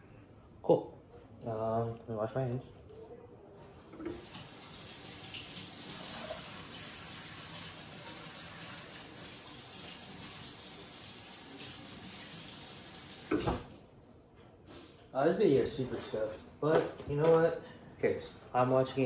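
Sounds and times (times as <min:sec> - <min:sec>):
tap running with hand washing: 0:03.8 - 0:13.9.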